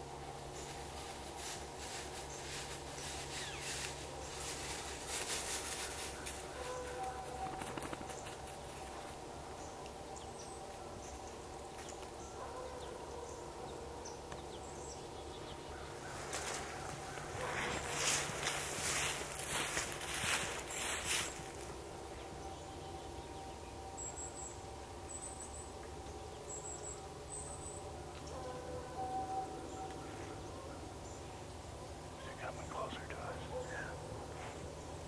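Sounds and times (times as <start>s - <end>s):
distant coyote howling: 26.5s - 31.0s.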